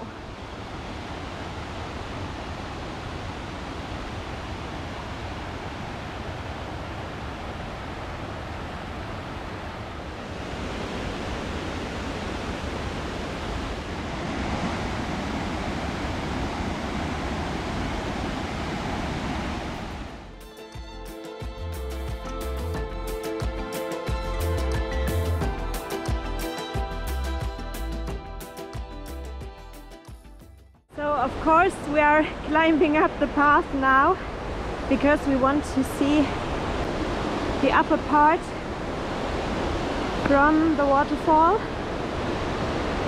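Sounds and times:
river rushing over boulders: 0.0 - 20.3, 31.3 - 43.0.

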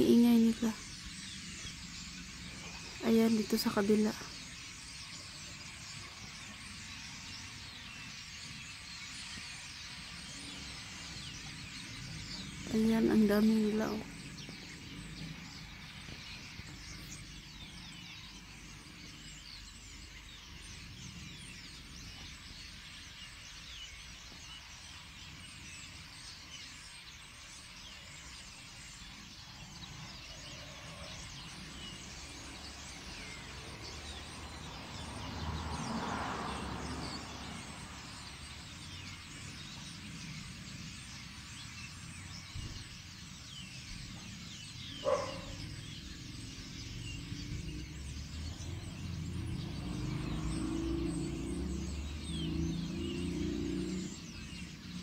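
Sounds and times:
flock of birds chirping: 0.0 - 55.0.

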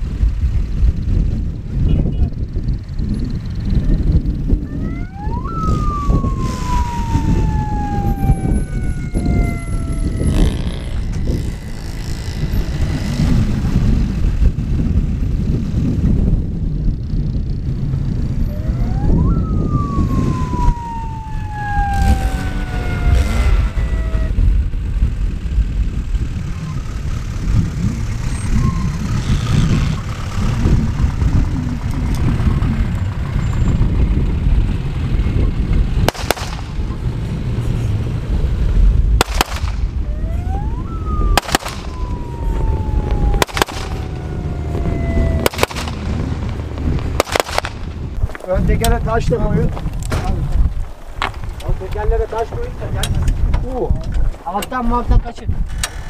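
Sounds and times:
engine whine: 0.0 - 53.4
off-road vehicle engines rumbling: 0.0 - 56.0.

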